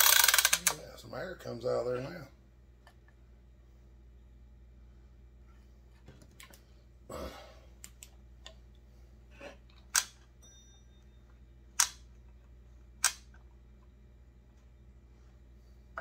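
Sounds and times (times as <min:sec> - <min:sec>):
sharp clicks: 0:11.8 - 0:12.0, 0:13.0 - 0:13.4.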